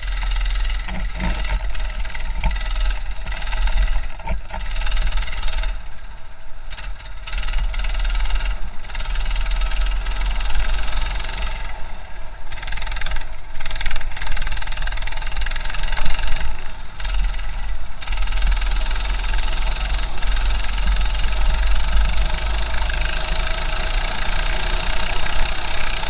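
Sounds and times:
heavy low rumble: 0.0 - 7.0
muffled go-kart engine: 0.0 - 26.0.

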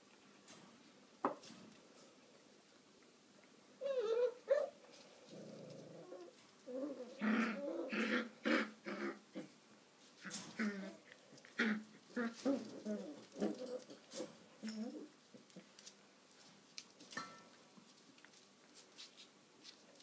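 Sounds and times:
puppy growling: 5.3 - 9.6, 10.2 - 15.1.

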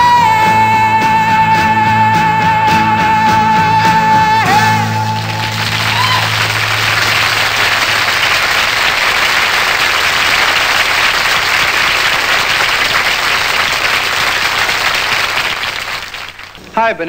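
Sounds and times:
rock band playing: 0.0 - 7.3
audience applauding: 4.4 - 16.6.

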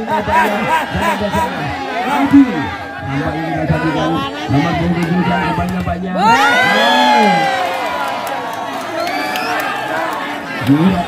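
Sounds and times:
crowd cheering and shouting: 0.0 - 11.0.

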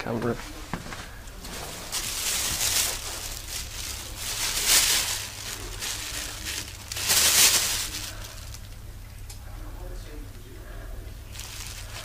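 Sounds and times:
plastic bag rustling: 0.7 - 8.8, 11.3 - 12.0.

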